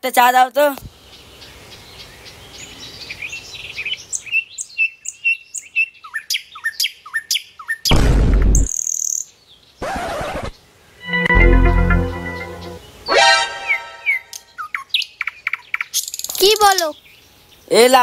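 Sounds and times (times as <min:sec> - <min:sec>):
birds chirping and whistling: 0:12.1 - 0:16.8.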